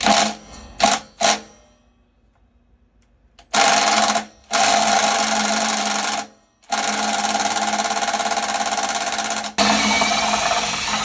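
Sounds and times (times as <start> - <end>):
impact driver hammering: 6.1 - 11.0.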